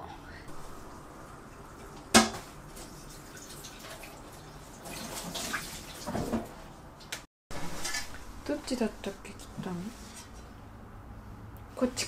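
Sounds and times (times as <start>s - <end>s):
tap water running and splashing: 0.8s - 6.5s.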